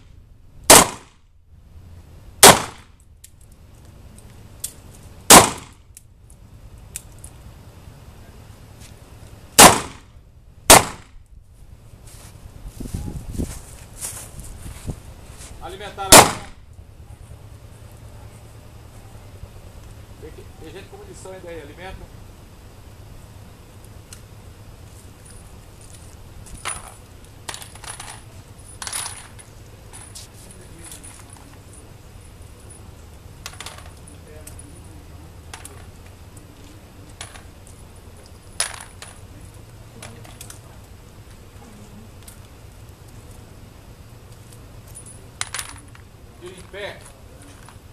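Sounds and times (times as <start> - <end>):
gunshots: 0.7 - 1.2, 2.4 - 2.9, 5.3 - 5.8, 9.6 - 10.1, 10.7 - 11.2, 16.1 - 16.6
metal cartridges clinking: 25.2 - 34.9, 37.1 - 40.6, 44.8 - 47.9.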